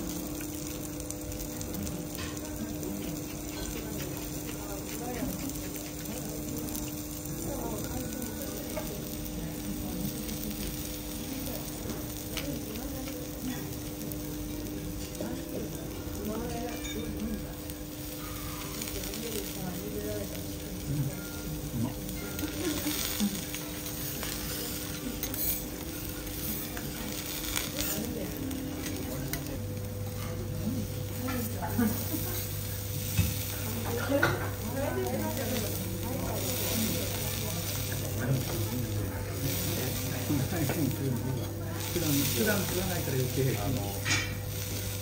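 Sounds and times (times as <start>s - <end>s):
vegetables sizzling on a griddle: 0.0s - 45.0s.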